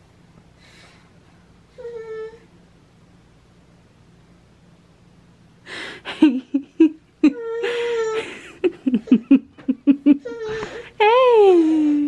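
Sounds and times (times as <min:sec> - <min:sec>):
toddler giggling: 0:07.2 - 0:10.6.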